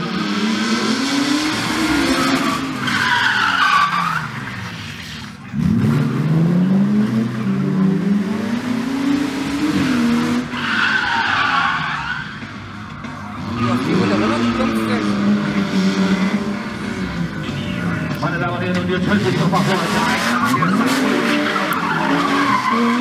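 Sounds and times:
car engines revving: 0.0s - 23.0s
tyres squealing: 10.4s - 12.5s, 19.6s - 23.0s.

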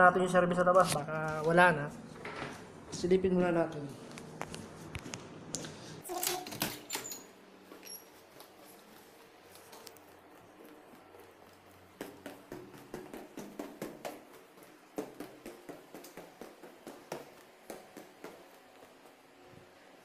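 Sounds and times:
footsteps going down stairs: 6.9s - 20.0s.

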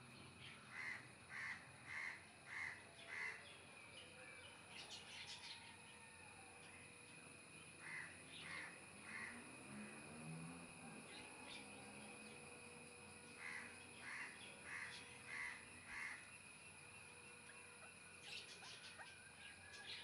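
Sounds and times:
faint bird calls: 0.4s - 6.1s, 7.8s - 9.5s, 13.2s - 20.0s.

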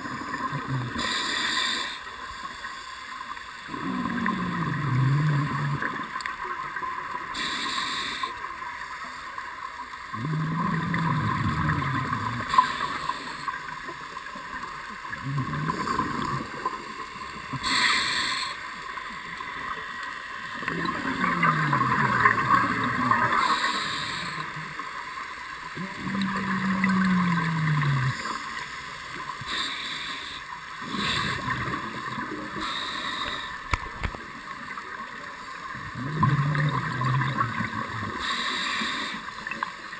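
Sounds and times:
steady hiss: 0.0s - 4.3s, 5.8s - 10.0s, 12.0s - 35.8s, 36.6s - 39.9s
diver breathing through regulator: 7.3s - 8.4s, 11.8s - 13.6s, 17.6s - 18.8s, 20.9s - 24.7s, 29.4s - 31.8s, 32.6s - 33.8s, 38.1s - 39.4s
bubbling: 10.1s - 13.8s, 15.1s - 24.9s, 25.7s - 29.6s, 35.8s - 38.4s.

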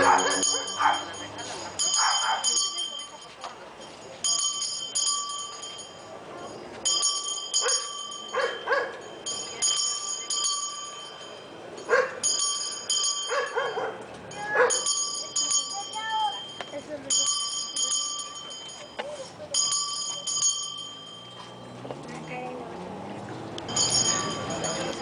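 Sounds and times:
dog barking: 0.0s - 1.1s, 2.0s - 2.4s, 7.6s - 9.0s, 11.9s - 12.2s, 13.3s - 14.0s, 14.6s - 14.8s
altar bells shaken: 0.0s - 22.6s, 23.7s - 25.0s.

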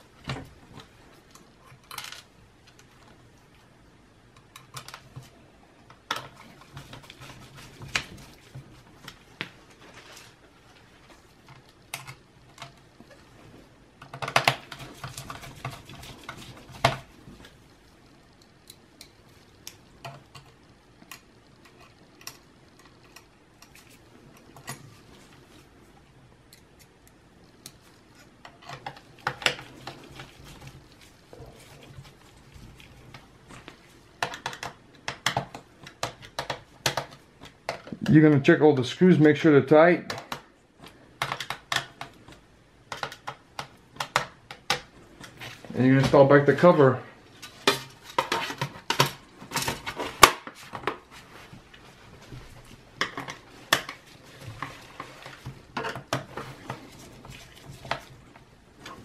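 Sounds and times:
clicks and rattles of laptop parts: 4.4s - 5.3s, 5.9s - 8.2s, 14.0s - 17.0s, 34.2s - 38.0s, 40.1s - 45.4s, 47.4s - 51.0s.

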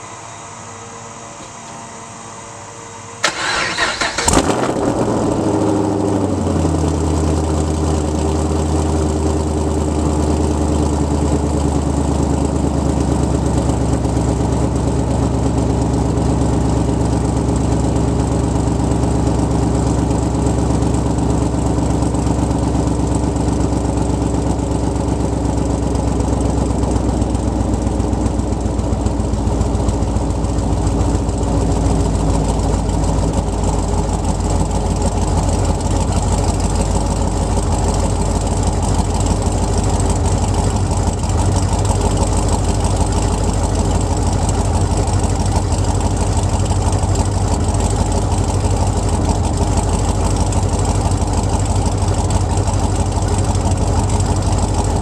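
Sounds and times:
car engine starting and idling: 2.4s - 55.0s.

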